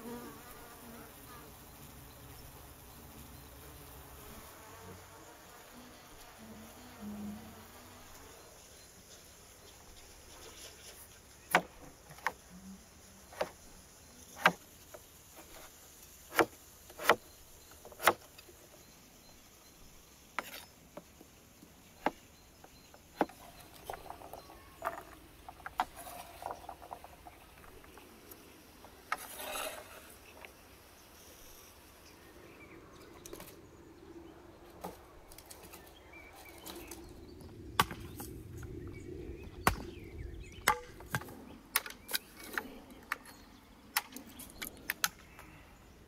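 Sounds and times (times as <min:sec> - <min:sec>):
knife scraping across board: 0:29.1 - 0:30.2.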